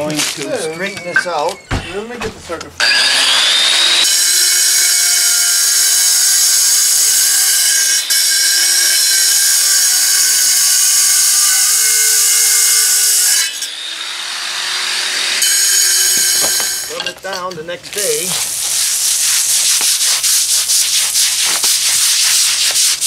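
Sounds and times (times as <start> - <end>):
angle grinder cutting stone: 2.8 - 17.2.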